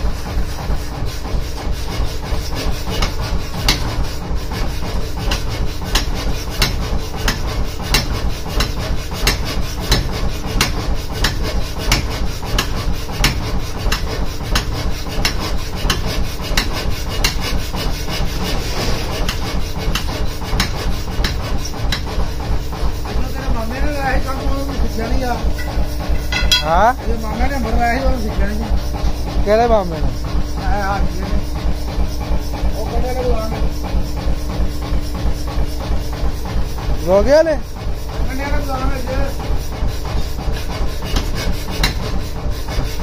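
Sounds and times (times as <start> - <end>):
power hammer striking hot iron: 1.7 - 22.2, 25.1 - 27.1, 41.0 - 42.9
motor humming: 23.0 - 32.0.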